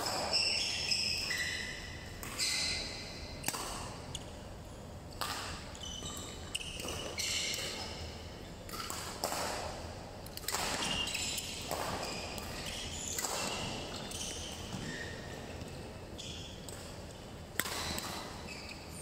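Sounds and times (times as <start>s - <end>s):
shoe squeaks on court floor: 0.0s - 4.0s, 5.3s - 8.1s, 10.7s - 16.7s, 17.7s - 19.0s
shuttlecock hits: 3.4s - 4.2s.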